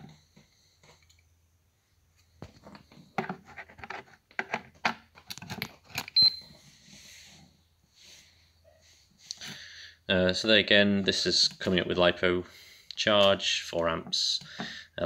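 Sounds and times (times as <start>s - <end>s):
plastic and cables rattling: 2.4s - 6.2s.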